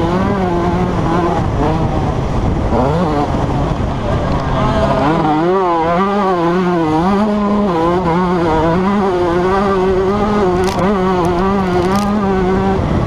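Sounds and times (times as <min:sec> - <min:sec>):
motocross engine revving: 0:00.0 - 0:13.0.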